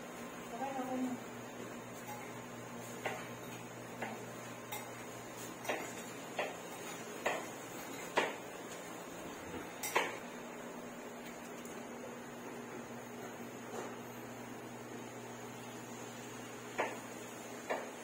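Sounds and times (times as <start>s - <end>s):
dishes clinking and knocking: 9.8s - 10.2s.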